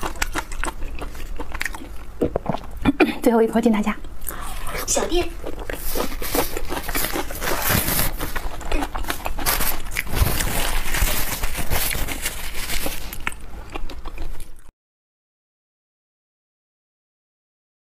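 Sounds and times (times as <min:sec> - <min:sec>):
wet chewing and lip smacks: 0:00.0 - 0:02.8, 0:04.0 - 0:14.7
paper tissue rustling: 0:05.8 - 0:13.3.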